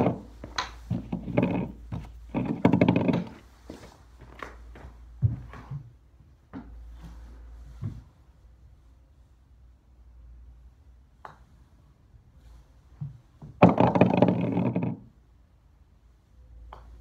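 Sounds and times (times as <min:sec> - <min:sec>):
putter tapping golf ball: 0:00.0 - 0:03.4, 0:13.0 - 0:15.1, 0:16.7 - 0:17.0
golf ball rattling in cup: 0:00.9 - 0:03.4.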